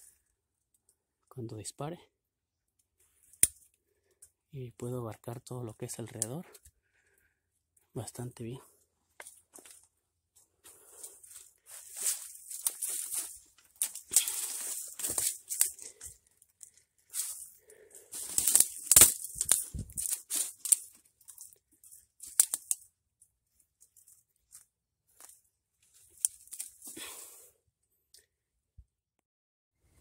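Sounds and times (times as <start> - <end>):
twigs snapping: 3.2 - 3.7, 11.3 - 22.9, 23.8 - 27.0
dry branches and leaves crackling: 10.7 - 22.9, 23.8 - 27.3.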